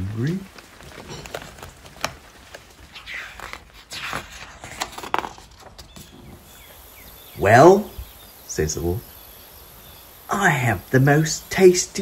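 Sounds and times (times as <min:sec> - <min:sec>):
book pages turning: 0:00.5 - 0:06.4.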